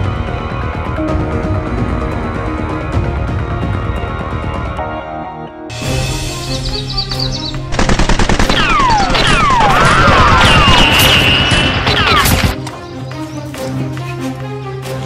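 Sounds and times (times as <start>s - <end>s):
background music: 0.0s - 15.0s
rapid machine-gun fire: 7.7s - 12.6s.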